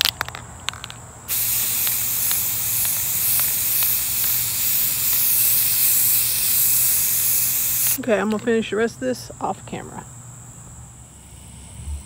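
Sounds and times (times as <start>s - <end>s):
spray paint can hissing: 0.1s - 8.0s.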